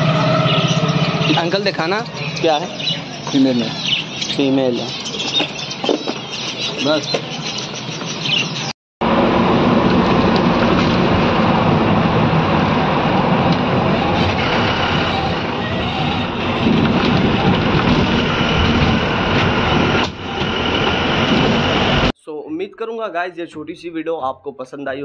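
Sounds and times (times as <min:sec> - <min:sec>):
bus engine and road rumble: 0:04.6 - 0:22.2.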